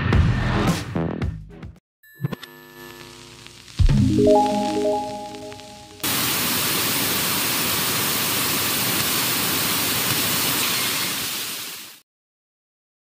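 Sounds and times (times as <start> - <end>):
tv static hiss: 2.6 - 12.0.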